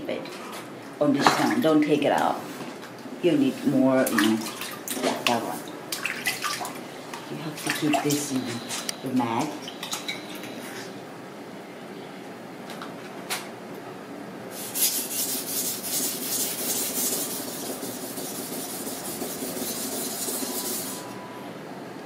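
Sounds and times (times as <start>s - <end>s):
knife scraping on whetstone: 14.6s - 21.1s.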